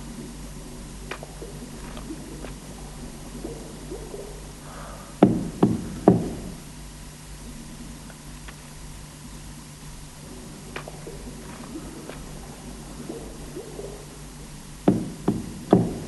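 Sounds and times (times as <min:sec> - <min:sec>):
steady low hum: 0:00.0 - 0:16.0
heavy ringing knocks: 0:14.8 - 0:16.0.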